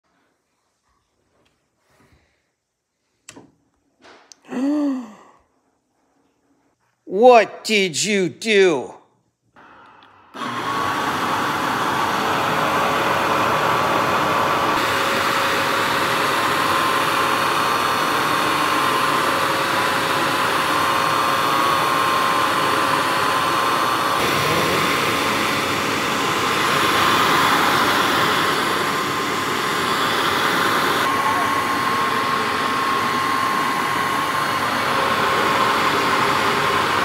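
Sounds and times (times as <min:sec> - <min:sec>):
carpet cleaner suction motor: 0:09.6 - 0:37.0
thin motor whine: 0:09.6 - 0:37.0.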